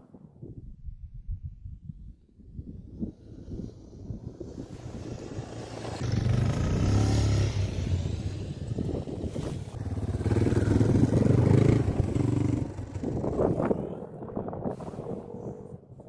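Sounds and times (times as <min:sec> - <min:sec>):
dirt bike engine revving: 0:04.9 - 0:13.8.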